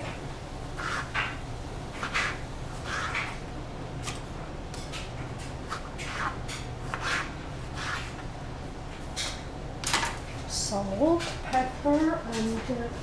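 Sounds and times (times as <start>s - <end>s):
steady low hum: 0.0s - 13.0s
knife cutting on plastic board: 0.8s - 1.4s, 5.7s - 8.2s.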